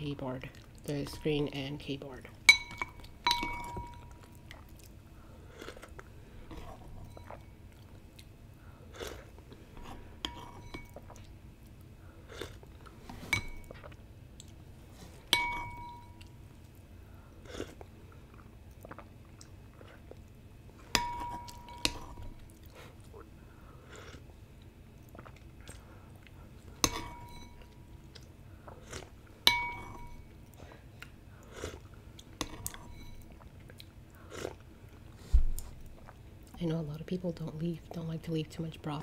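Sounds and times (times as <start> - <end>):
spoon clinking on porcelain bowl: 2.5 - 4.2, 10.2 - 11.0, 15.3 - 16.2, 21.0 - 22.3, 26.8 - 27.7, 29.5 - 30.3
soft chewing: 2.8 - 15.3, 15.9 - 36.6.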